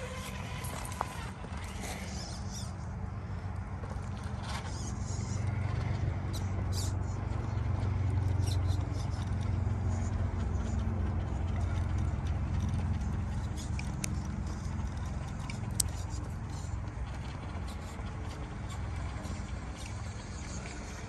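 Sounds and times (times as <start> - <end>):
tyres clicking and scraping on rock: 0.0 - 2.7
electric motor humming: 0.0 - 3.6.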